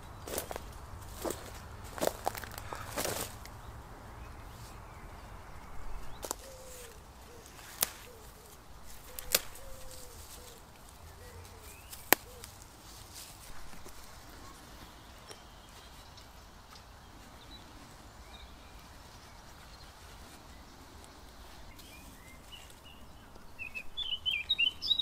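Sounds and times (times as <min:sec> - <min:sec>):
foliage rustling: 0:00.0 - 0:25.0
plant stems snapping: 0:06.2 - 0:12.7.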